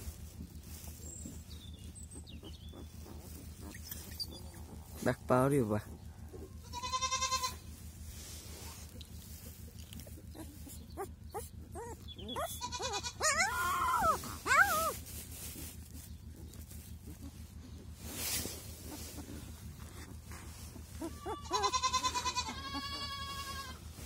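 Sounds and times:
puppy whimpering and squealing: 0:02.2 - 0:04.8, 0:09.9 - 0:15.1, 0:18.8 - 0:23.5.

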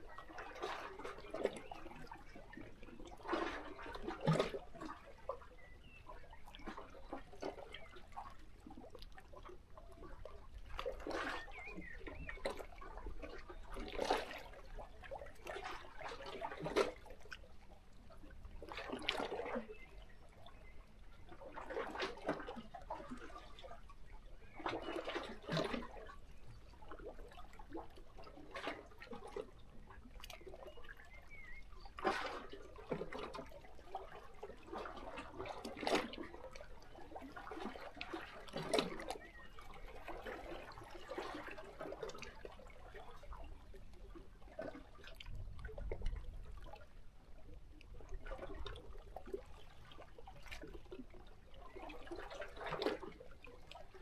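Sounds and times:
waves lapping against rocks: 0:00.0 - 0:54.0.

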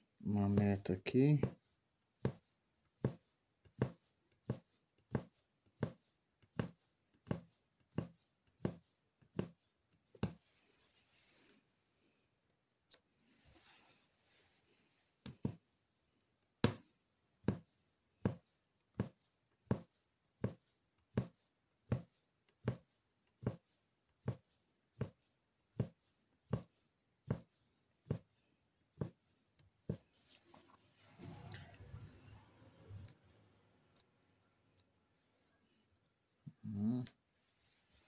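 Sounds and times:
punch needle tapping fabric: 0:00.5 - 0:10.5, 0:15.2 - 0:15.8, 0:16.4 - 0:30.1.

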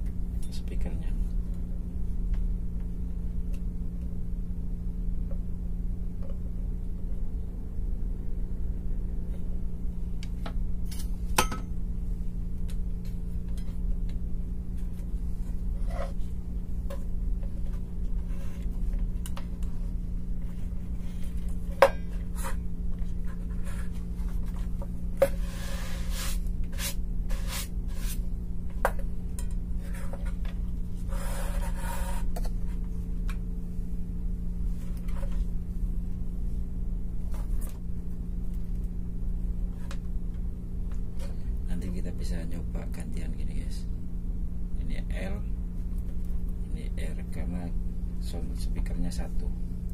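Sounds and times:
steady low hum: 0:00.0 - 0:49.9
rubbing scrapes: 0:25.2 - 0:28.3, 0:31.0 - 0:32.4.

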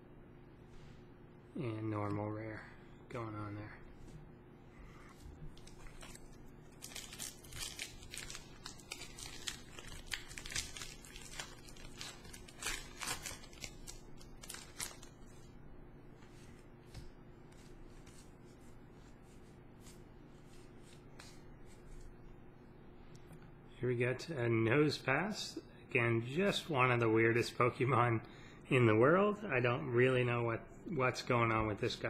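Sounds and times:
cards rustling: 0:05.2 - 0:15.5
foil wrapper tearing and crinkling: 0:05.6 - 0:15.2.

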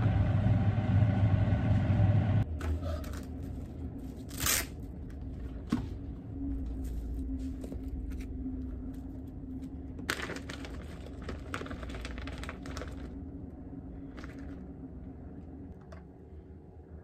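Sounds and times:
steady low hum: 0:00.0 - 0:11.6, 0:12.6 - 0:17.0
plastic bag crinkling: 0:10.0 - 0:13.2
plastic wrap crinkles: 0:10.0 - 0:13.2.

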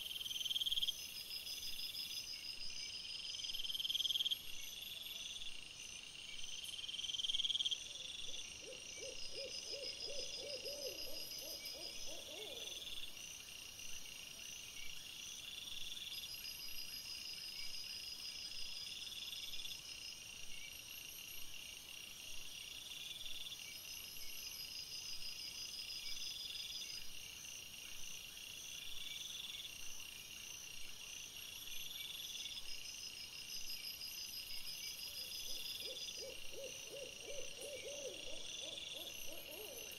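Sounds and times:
night insects chirping: 0:00.0 - 0:39.9
owl hooting: 0:08.6 - 0:12.7, 0:35.5 - 0:39.9.

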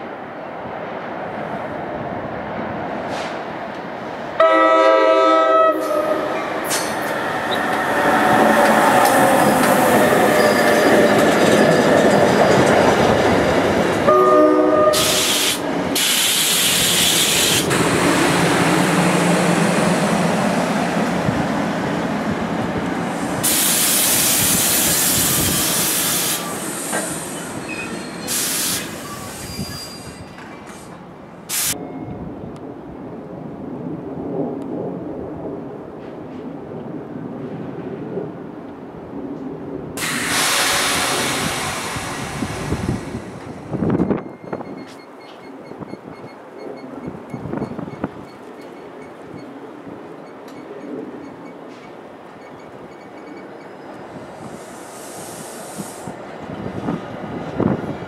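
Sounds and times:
train air horn blasts: 0:04.4 - 0:06.4, 0:14.1 - 0:17.7
train wheels rumbling on rails: 0:05.1 - 0:33.6, 0:34.3 - 0:58.0
wheel squeal: 0:10.3 - 0:12.6, 0:26.3 - 0:30.8, 0:50.2 - 0:53.9
rushing hiss: 0:15.0 - 0:20.1, 0:23.0 - 0:31.8, 0:40.0 - 0:43.6, 0:54.2 - 0:56.3.

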